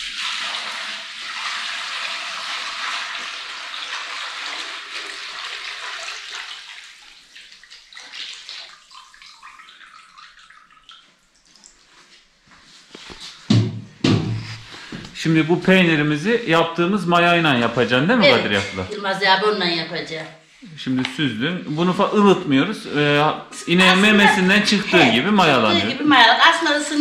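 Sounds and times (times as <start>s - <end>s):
milk pouring into bucket: 0.0s - 13.2s.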